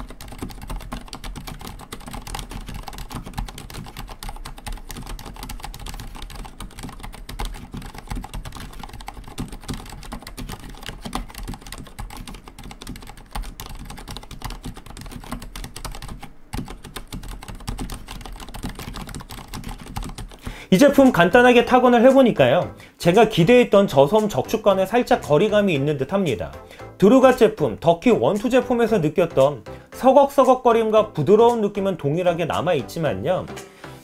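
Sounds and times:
fast typing on keyboard: 0.0 - 26.2.

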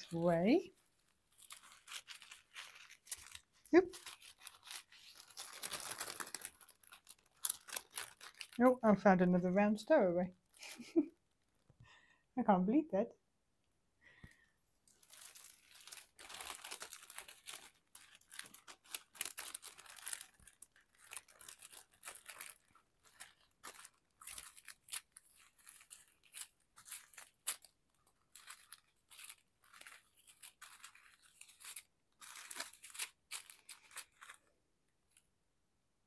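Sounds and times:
plastic bags crinkling: 0.0 - 8.8, 14.9 - 34.5.

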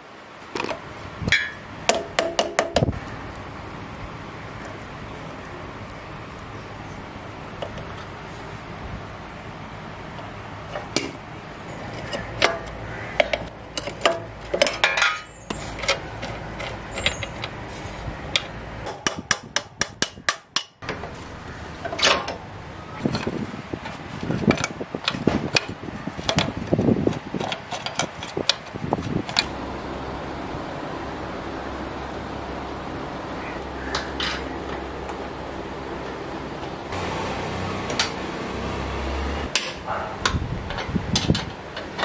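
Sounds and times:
metal tools clinking and knocking: 11.7 - 17.6, 34.0 - 34.5.

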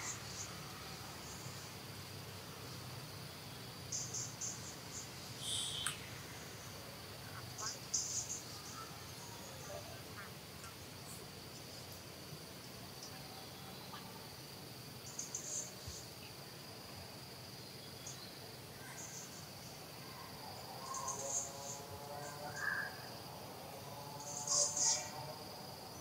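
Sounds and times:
insects trilling: 0.0 - 26.0
faint pitched call: 5.4 - 6.0.

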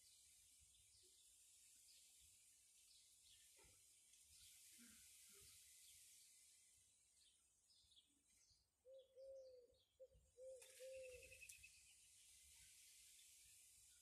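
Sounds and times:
quiet outdoor hiss: 0.0 - 14.0
faint high bird chirps: 7.2 - 12.0
dove cooing: 10.4 - 11.3.

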